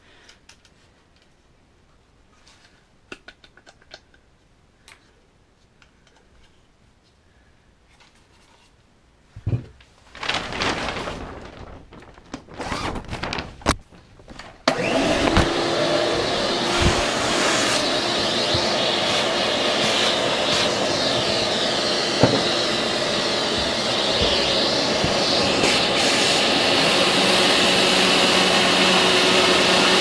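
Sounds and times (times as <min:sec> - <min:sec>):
thump and rustling: 0:09.4 - 0:09.8, 0:22.2 - 0:22.5
shop vacuum motor whine: 0:14.7 - 0:30.0.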